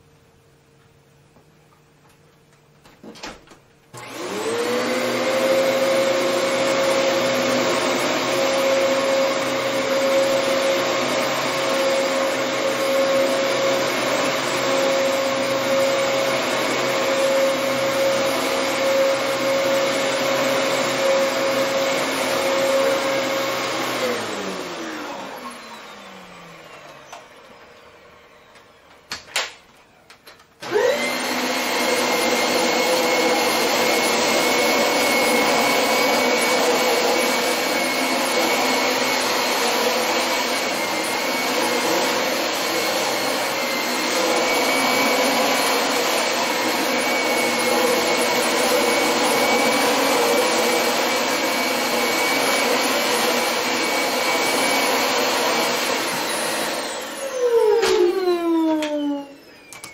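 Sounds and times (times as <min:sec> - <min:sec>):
vacuum cleaner running with whine: 0:03.9 - 0:59.9
clicks: 0:59.7 - 0:59.9.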